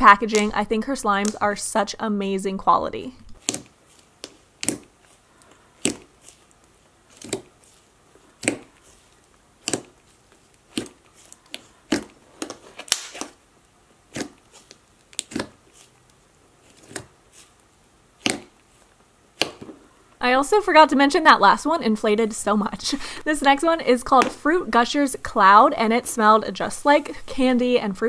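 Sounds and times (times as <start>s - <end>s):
slime bubbles popping: 3.4s - 5.0s, 5.8s - 6.4s, 8.4s - 8.9s, 10.7s - 12.1s.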